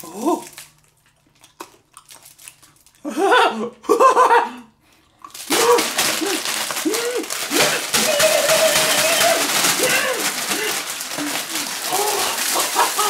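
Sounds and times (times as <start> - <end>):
plastic bag crinkling: 0.0 - 1.2, 5.2 - 13.0
man laughing: 3.1 - 4.7, 5.8 - 13.0.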